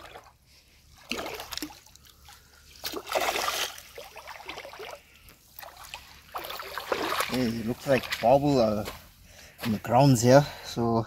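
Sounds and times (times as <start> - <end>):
fish splashing in water: 1.0 - 8.2.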